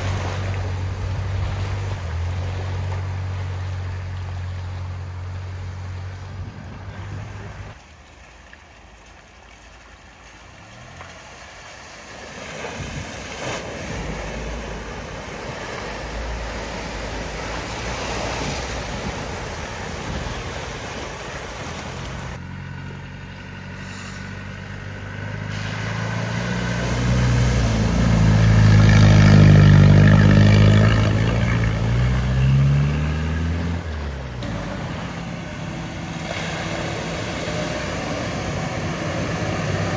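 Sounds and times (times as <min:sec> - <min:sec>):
water rushing around vehicle: 0:00.0 - 0:39.9
vehicle engine running: 0:21.4 - 0:32.8.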